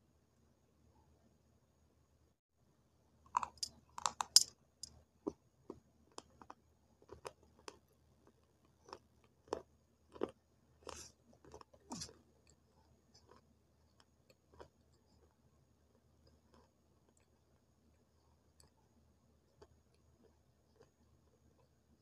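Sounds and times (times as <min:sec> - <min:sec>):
crunchy chewing: 0:03.3 - 0:04.5, 0:05.3 - 0:18.8, 0:19.4 - 0:21.8.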